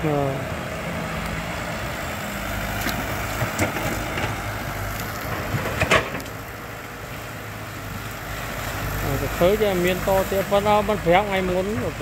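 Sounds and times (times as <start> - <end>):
excavator diesel engine running: 0.0 - 12.0
branches knocking and snapping: 2.5 - 7.2.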